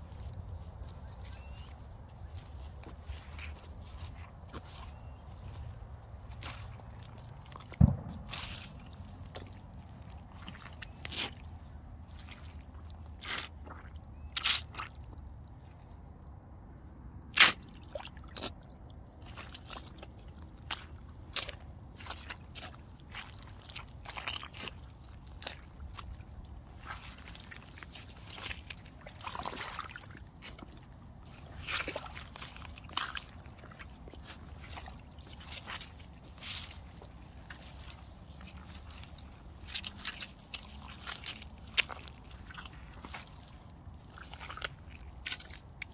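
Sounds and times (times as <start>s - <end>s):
boots sloshing through puddles: 0.0s - 45.9s
rubber boots squelching in mud: 0.0s - 45.9s
sharp thump: 7.8s - 8.8s.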